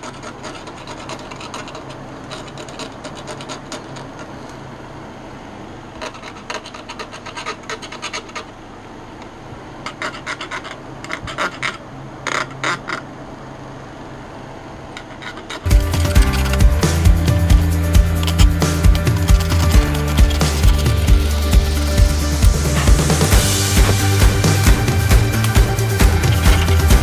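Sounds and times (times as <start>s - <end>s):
knife blade scraping wood: 6.0s - 8.5s, 9.9s - 13.0s, 15.0s - 27.0s.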